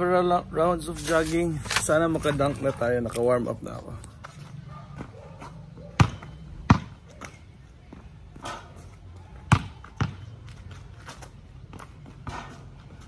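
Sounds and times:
basketball bouncing on concrete: 4.2s - 13.0s.

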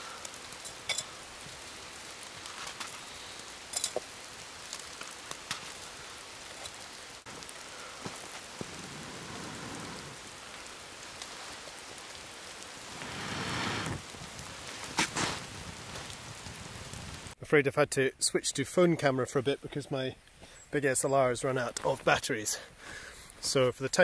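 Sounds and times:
wood fire hissing and crackling: 0.0s - 17.4s, 19.4s - 24.0s
rushing noise: 12.8s - 15.6s.

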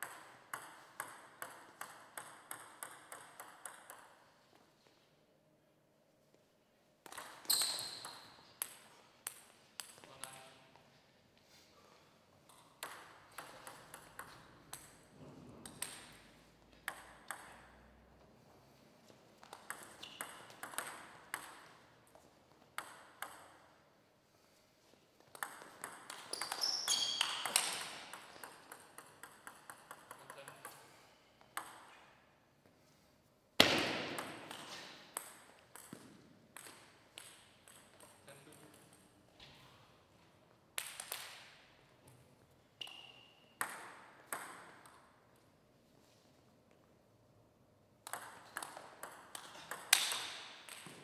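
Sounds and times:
table tennis ball clicking: 0.0s - 4.2s, 27.2s - 30.8s.

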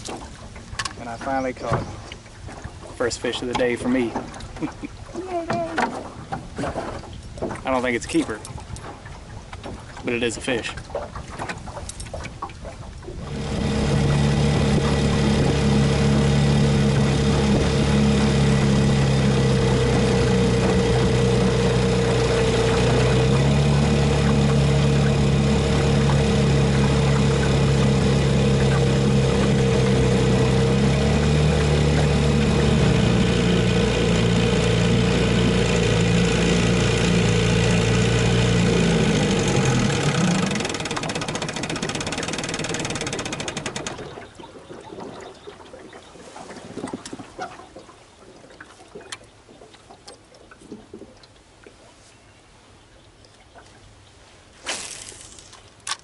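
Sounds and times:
outboard motor running: 0.0s - 51.5s.

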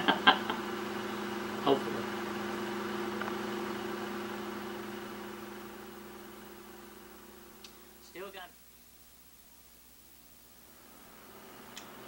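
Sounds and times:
low two-tone hum: 0.0s - 12.0s.

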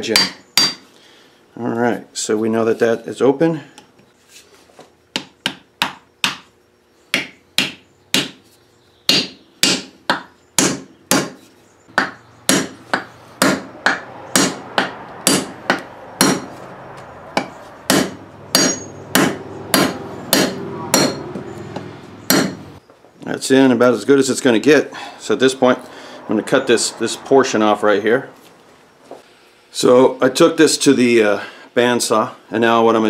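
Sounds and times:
hammer striking wooden wedge: 0.1s - 0.8s, 5.1s - 6.5s, 7.1s - 8.4s, 9.1s - 16.6s, 17.4s - 22.7s.

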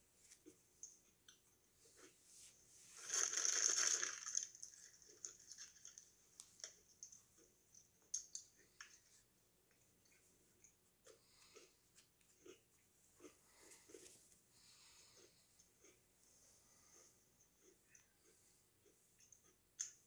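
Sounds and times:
plastic wrapper crinkling: 3.0s - 6.0s.

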